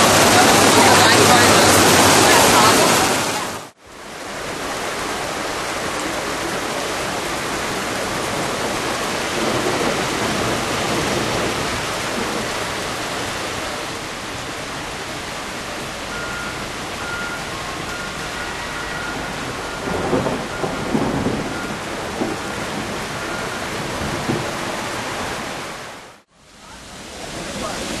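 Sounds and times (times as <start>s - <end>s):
heavy rain pouring: 0.0s - 28.0s.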